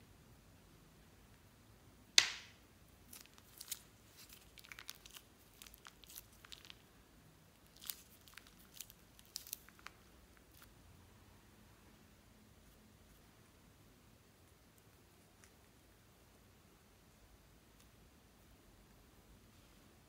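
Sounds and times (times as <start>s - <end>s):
plastic piping bag crinkling: 3.0s - 6.9s, 7.5s - 10.7s.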